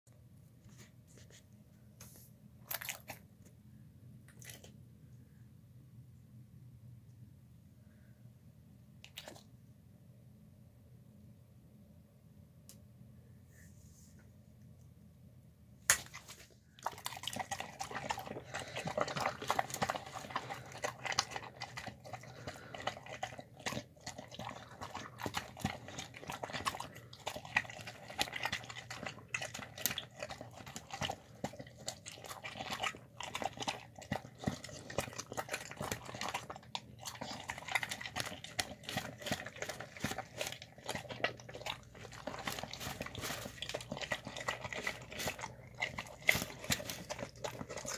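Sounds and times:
dog eating wet food: 9.1 - 9.4, 16.0 - 47.9.

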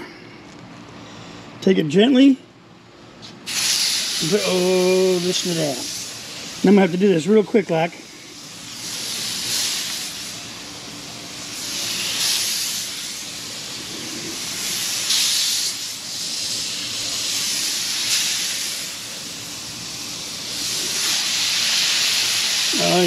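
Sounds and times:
fish sizzling on a griddle: 8.1 - 23.0.

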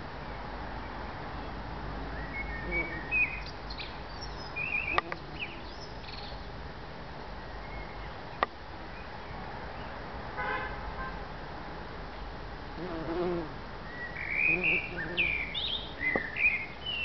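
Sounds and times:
distant road traffic: 0.0 - 17.0
bird chirping: 1.4 - 6.5, 13.8 - 17.0
car horn toot: 10.4 - 11.1.

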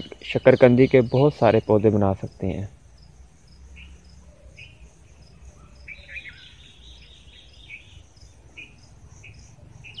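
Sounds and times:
birds chirping and warbling: 0.0 - 10.0
high insect chirps: 0.0 - 10.0.

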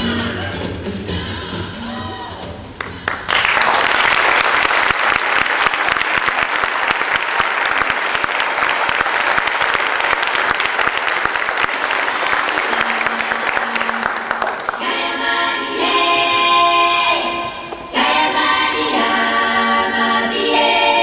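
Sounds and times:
music: 0.0 - 3.6, 11.7 - 21.0
audience applauding: 2.8 - 15.7.

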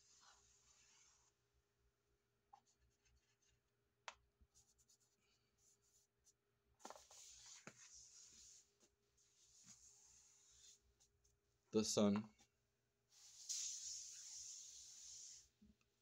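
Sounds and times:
hand brushing powder on floor: 13.1 - 15.6.

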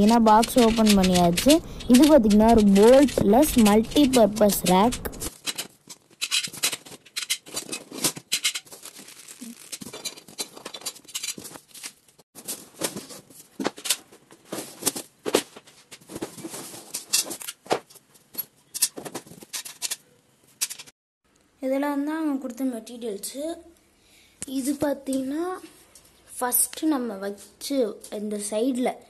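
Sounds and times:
metal posts scraping and knocking: 0.0 - 8.9
cardboard rustling: 0.0 - 19.9.

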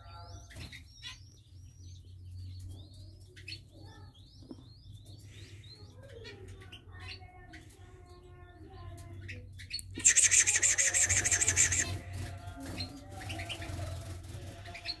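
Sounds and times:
quail chicks peeping: 0.0 - 15.0
loud rapid buzzing trill: 10.0 - 12.0.

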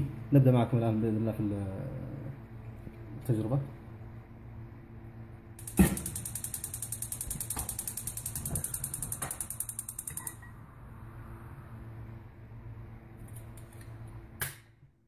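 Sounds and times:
gas stove igniter ticking: 5.6 - 10.4.

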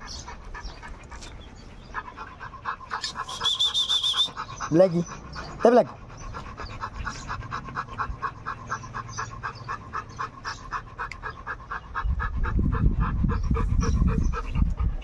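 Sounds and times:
dog panting: 0.0 - 15.0.

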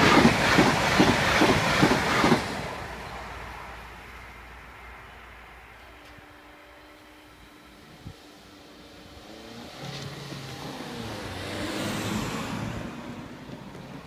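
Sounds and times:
car driving past: 9.2 - 14.0.

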